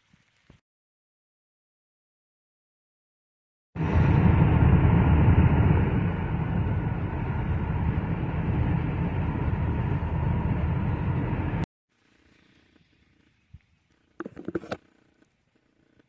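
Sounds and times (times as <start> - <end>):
vehicle driving rumble from cabin: 3.8 - 11.7.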